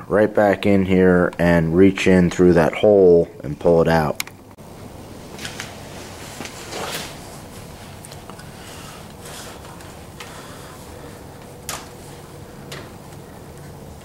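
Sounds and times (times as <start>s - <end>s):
gloved hand rustling and scraping: 5.4s - 13.8s.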